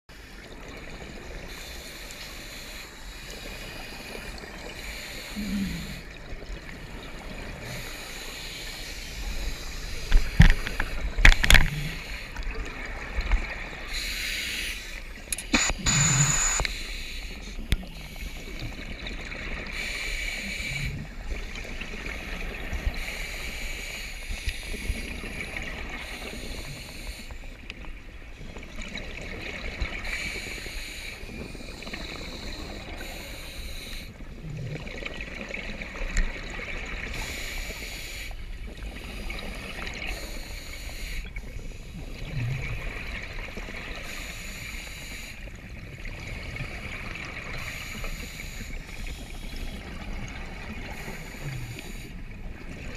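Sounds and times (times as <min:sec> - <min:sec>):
regulator inhalation hiss: 0:07.7 - 0:10.0, 0:13.9 - 0:18.7, 0:19.7 - 0:21.0, 0:22.9 - 0:25.1, 0:26.0 - 0:27.4, 0:30.0 - 0:34.1, 0:37.2 - 0:38.4, 0:39.1 - 0:41.3, 0:44.0 - 0:45.4, 0:47.6 - 0:49.8.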